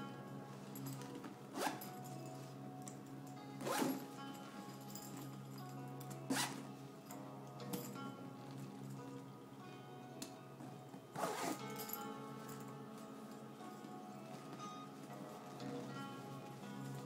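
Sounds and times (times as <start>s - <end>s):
background music: 0.0s - 17.0s
zipper: 0.9s - 2.2s, 3.6s - 4.1s, 6.3s - 6.7s, 11.2s - 12.0s
stiff tarpaulin bag rustling: 3.6s - 4.1s, 11.2s - 11.7s.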